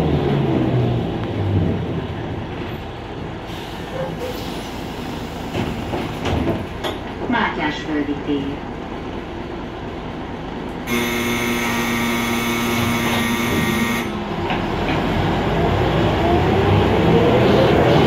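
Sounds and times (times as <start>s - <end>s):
electric warning buzzer: 10.9s - 14.2s
diesel engine revving: 10.9s - 18.0s.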